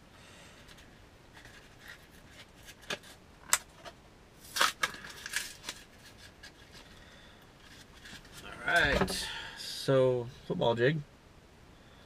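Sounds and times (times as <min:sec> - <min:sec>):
packaging rustling and crinkling: 0:00.6 - 0:09.2.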